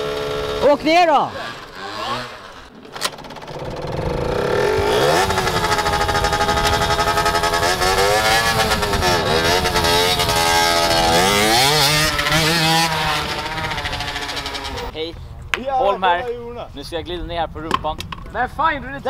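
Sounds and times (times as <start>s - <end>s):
motorcycle engine revving: 0.0s - 14.9s.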